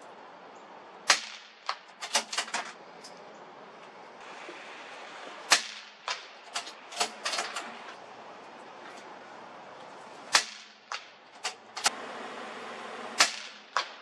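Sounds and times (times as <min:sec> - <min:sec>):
rifle shots cracking: 0:01.1 - 0:02.3, 0:05.5 - 0:07.2, 0:10.3 - 0:11.9, 0:13.2 - 0:14.0.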